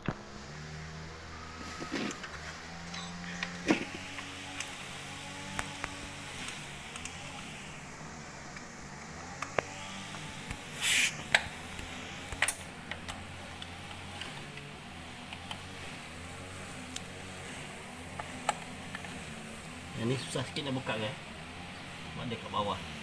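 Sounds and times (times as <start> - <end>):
steady low hum: 0.0 - 23.0
scraping rustle: 1.4 - 4.5.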